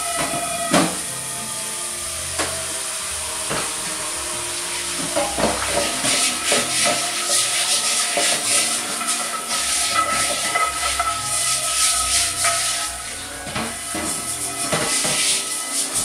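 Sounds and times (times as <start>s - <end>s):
brush scrubbing skillet: 0.0s - 16.0s
tap water running into sink: 0.0s - 16.0s
pan knocking: 3.3s - 16.0s.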